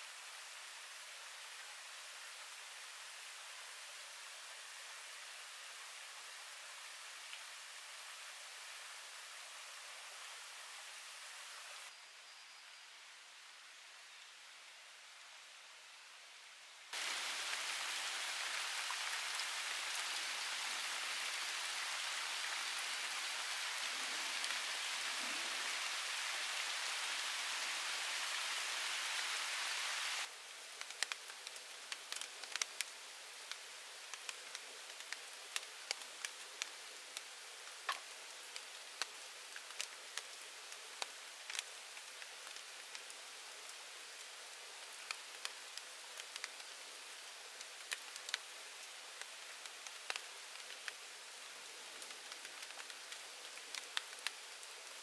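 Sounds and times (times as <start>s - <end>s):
background hiss: 0.0s - 55.0s
steady rain falling: 0.0s - 55.0s.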